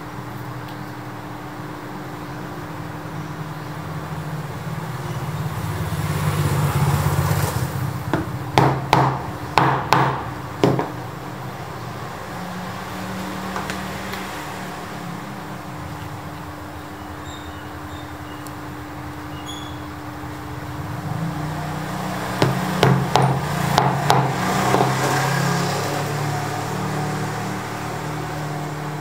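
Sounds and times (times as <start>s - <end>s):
traffic rumble: 0.0s - 29.0s
sharp knocks: 8.1s - 11.0s, 22.4s - 25.3s.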